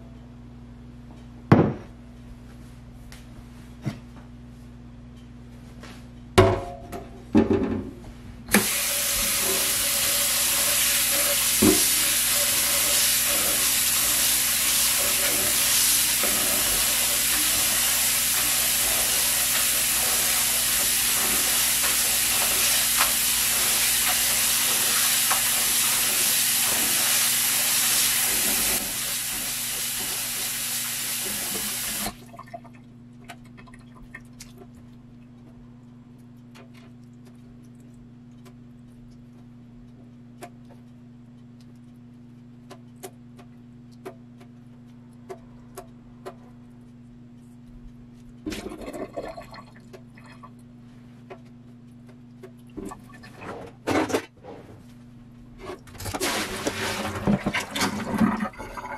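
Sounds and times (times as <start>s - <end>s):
tap water running into bowl: 8.5s - 32.2s, 56.2s - 58.9s.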